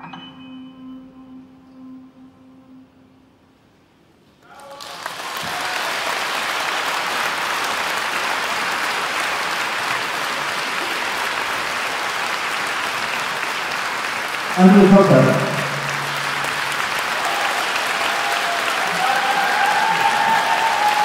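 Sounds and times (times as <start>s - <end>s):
audience applauding: 4.5s - 21.0s.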